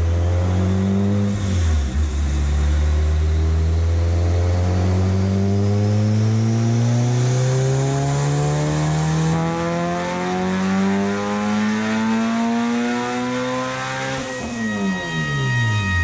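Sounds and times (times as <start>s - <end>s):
car engine revving under load: 0.0s - 16.0s
turbo whistle: 13.9s - 16.0s.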